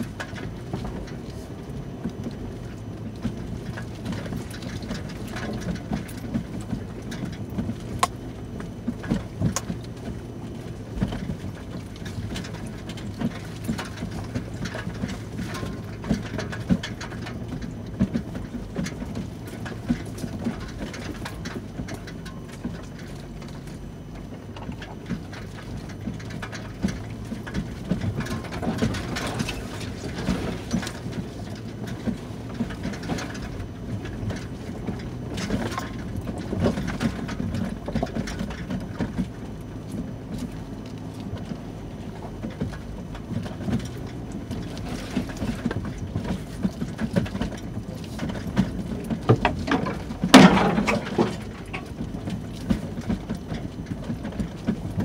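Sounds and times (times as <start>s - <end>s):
knocks and rattles over rocks: 0.0s - 55.0s
low engine hum: 0.0s - 55.0s.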